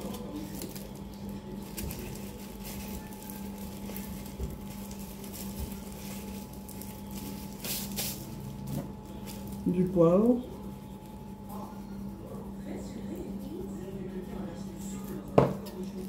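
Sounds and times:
wrapper rustling and crinkling: 0.0 - 11.4
steady low hum: 0.0 - 16.0.

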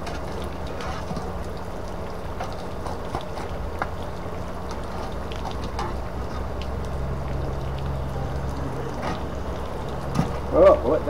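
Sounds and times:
coals shovelled onto metal lid: 0.0 - 1.3.

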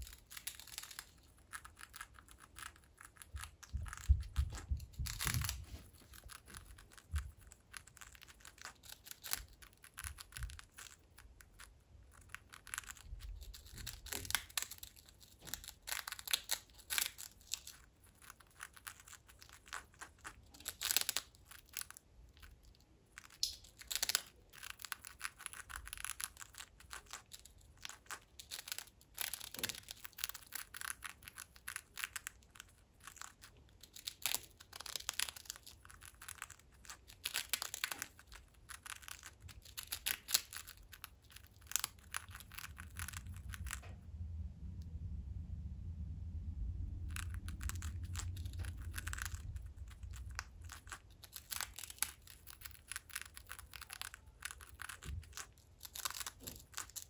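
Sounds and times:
parrot crunching a cracker: 0.0 - 43.9, 46.9 - 57.0.

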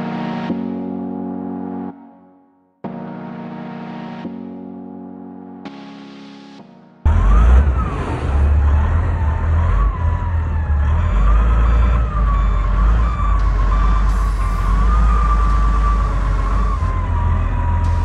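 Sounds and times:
loader diesel engine rumbling: 7.1 - 18.0.

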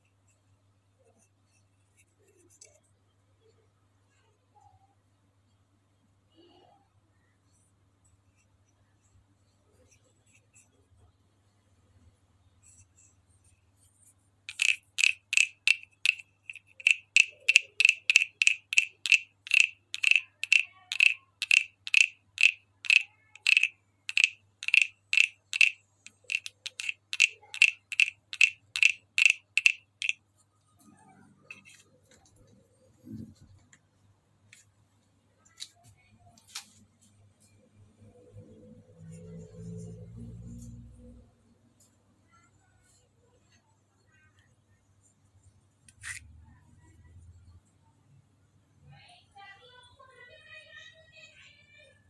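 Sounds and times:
wooden frog rasping croaks: 14.5 - 30.2.

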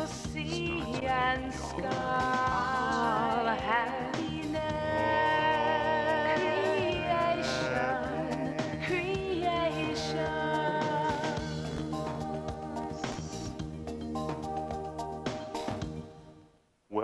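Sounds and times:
person singing with vibrato: 0.0 - 13.6
instrumental backing: 0.0 - 16.6.

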